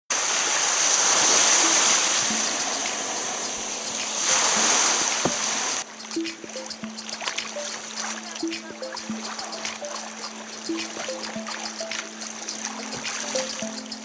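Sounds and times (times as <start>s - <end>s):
surf breaking around kayak: 0.2s - 5.8s
music: 1.6s - 14.0s.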